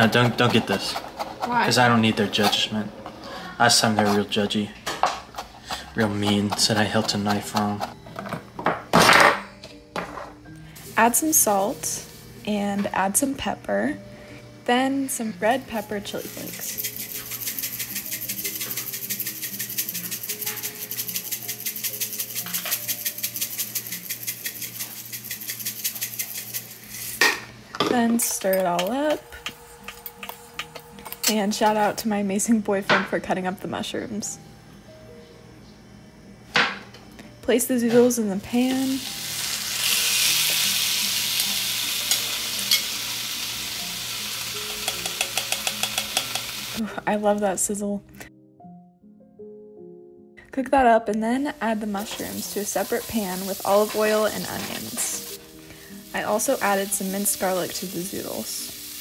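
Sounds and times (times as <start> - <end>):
faint background music: 0.0 - 59.0
zucchini sizzling in a frying pan: 10.8 - 12.2, 15.5 - 27.2, 38.5 - 46.8, 51.4 - 59.0
chili flakes rattling in shaker: 15.8 - 27.2, 52.0 - 55.4, 56.1 - 59.0.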